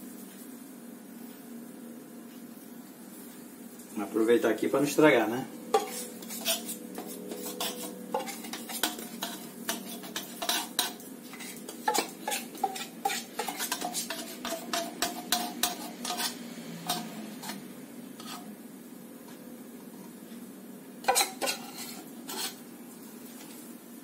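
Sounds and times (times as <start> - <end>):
metal spoon scraping a metal can: 5.7 - 17.6, 18.2 - 18.5, 21.0 - 22.6.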